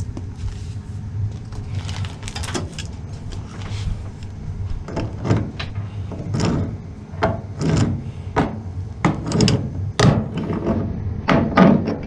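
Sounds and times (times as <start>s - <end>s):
hose knocking and scraping: 4.8s - 12.0s.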